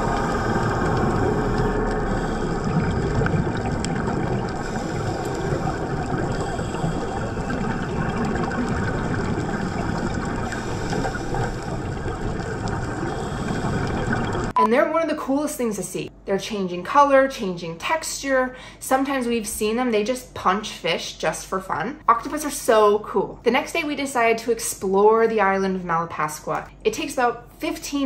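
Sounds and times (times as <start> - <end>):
muffled underwater rush: 0.0 - 14.6.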